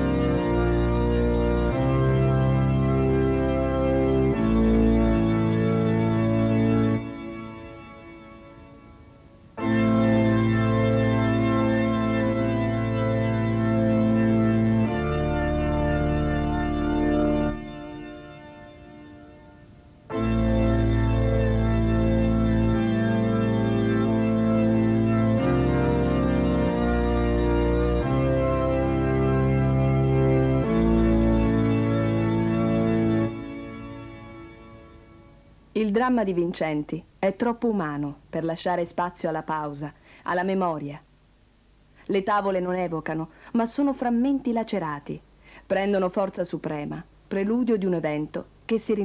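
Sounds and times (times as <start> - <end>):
organ chords over deep bass: 0.0 - 35.7.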